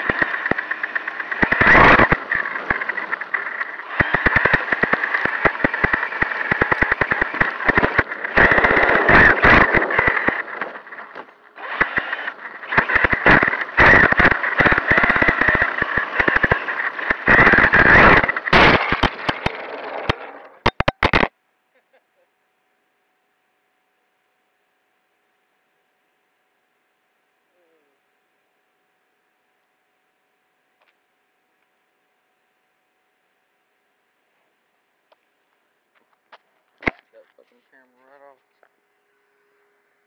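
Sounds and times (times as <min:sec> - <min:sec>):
chassis rattling and knocking: 0:00.0 - 0:21.3
electric motor whining: 0:00.0 - 0:21.3.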